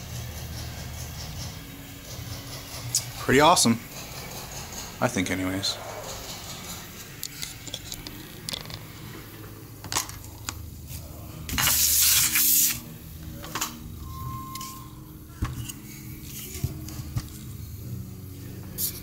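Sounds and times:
loud hiss: 11.6s - 12.9s
short steady beep: 14.0s - 14.9s.

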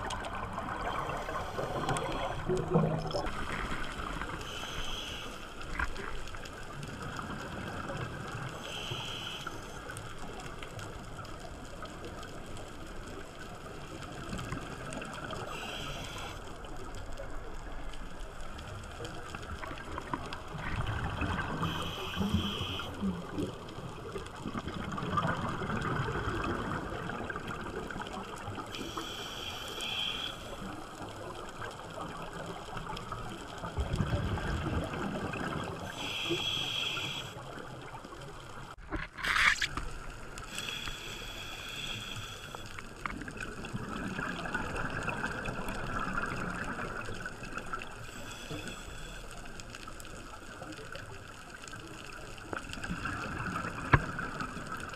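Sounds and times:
gurgling exhaled bubbles: 0.0s - 4.4s, 19.6s - 28.4s, 32.0s - 35.9s, 43.1s - 48.0s, 52.6s - 54.9s
scuba regulator inhalation hiss: 3.4s - 5.7s, 8.5s - 10.0s, 15.4s - 16.5s, 21.6s - 23.0s, 28.8s - 30.7s, 35.8s - 37.5s, 40.5s - 42.9s, 48.0s - 49.5s.

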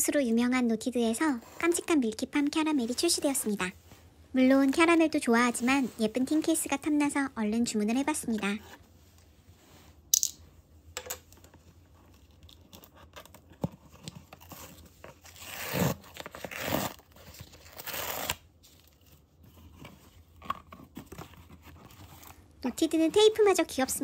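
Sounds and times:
packing tape ripping off box: 14.3s - 19.0s.

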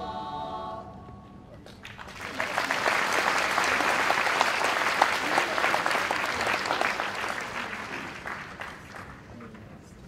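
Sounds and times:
audience applauding: 1.8s - 9.6s.

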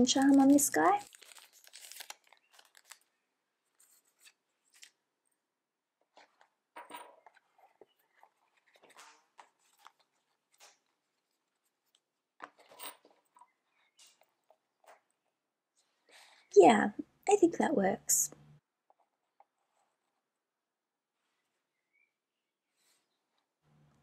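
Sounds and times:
hands rustling leather cover: 6.1s - 15.0s.

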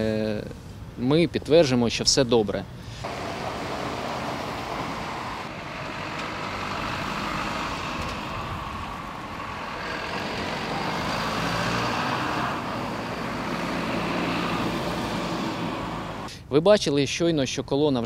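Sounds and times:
vehicles driving past: 2.7s - 16.3s
bus approaching: 2.8s - 16.3s.

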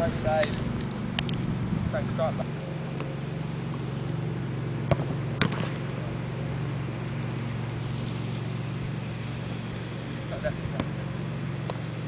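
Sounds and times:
steady low hum: 0.0s - 12.0s
football thuds: 4.8s - 5.8s.

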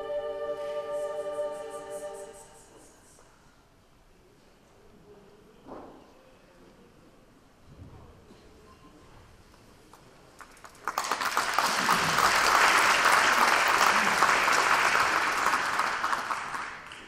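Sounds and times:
audience applauding: 10.4s - 17.0s.

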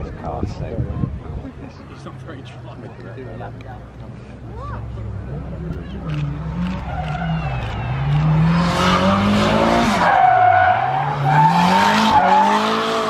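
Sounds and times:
car engine revving hard: 6.2s - 13.0s.

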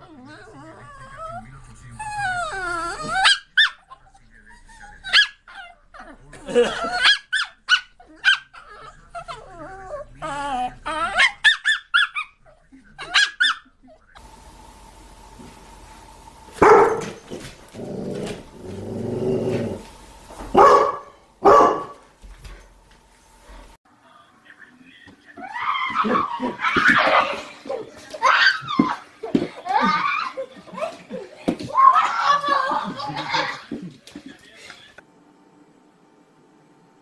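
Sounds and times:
dog barking and growling: 5.0s - 12.4s, 16.5s - 22.1s, 25.4s - 33.7s.

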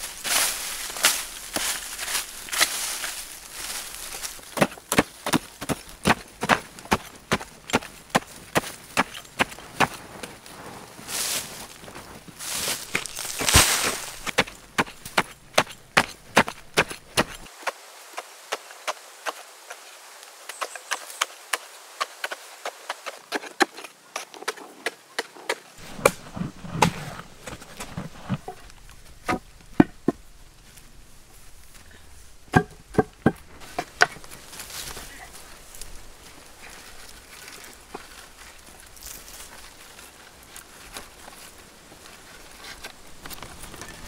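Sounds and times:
poles knocking into dry soil: 1.0s - 10.4s, 12.5s - 17.5s, 24.4s - 30.3s, 32.5s - 34.9s
heavy thuds: 32.5s - 34.3s.

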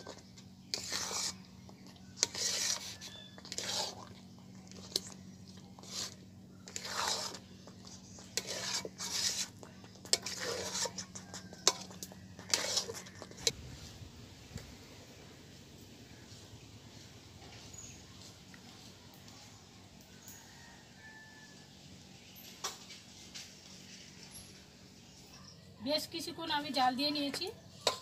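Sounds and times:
metal spatula scraping a wok: 0.0s - 4.1s, 5.8s - 13.6s, 27.7s - 28.0s
steady low hum: 0.0s - 20.0s.

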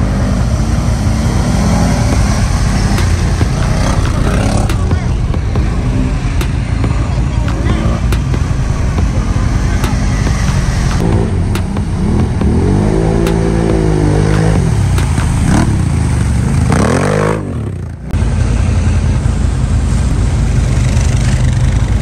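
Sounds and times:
quad engines revving: 0.0s - 22.0s
tyres churning through mud: 0.0s - 22.0s
vehicle engine running steadily: 0.0s - 22.0s.

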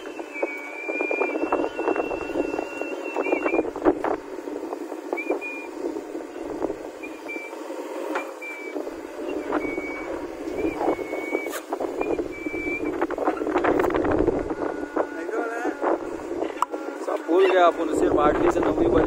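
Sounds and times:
high whistling tones: 0.0s - 4.2s, 5.1s - 7.6s, 8.2s - 15.3s
backhoe loader working: 0.0s - 19.0s.

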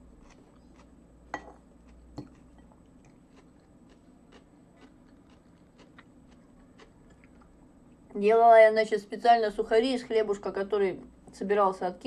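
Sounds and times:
chewing and biting food: 0.0s - 1.0s, 1.8s - 7.6s.

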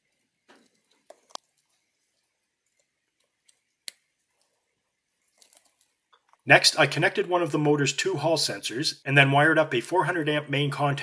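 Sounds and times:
plastic rustle: 4.2s - 6.4s.

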